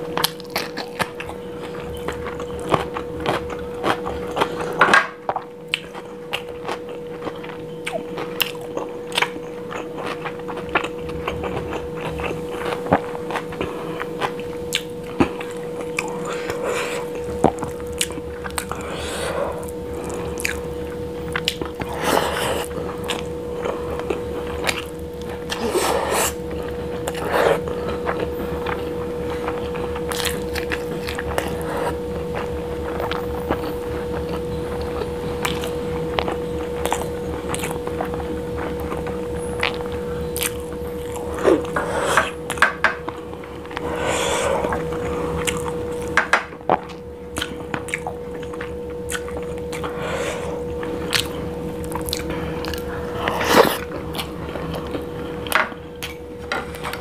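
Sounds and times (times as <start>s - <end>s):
steady hum: 0.0s - 57.0s
chewing and mouth sounds: 0.1s - 57.0s.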